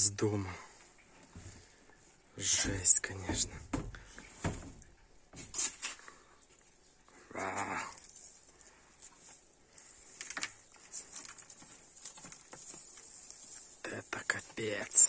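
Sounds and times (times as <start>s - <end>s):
debris rustling in plastic bin: 7.4s - 15.0s.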